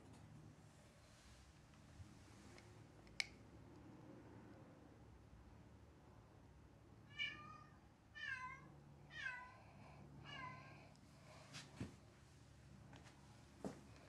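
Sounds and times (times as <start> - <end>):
cat meowing: 7.1 - 9.6.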